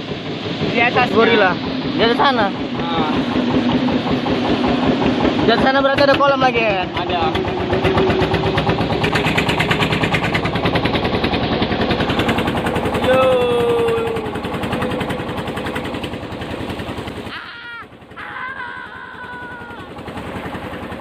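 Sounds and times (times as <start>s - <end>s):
boat engine knocking: 0.0s - 21.0s
person calling out: 13.0s - 14.2s, 17.3s - 19.9s.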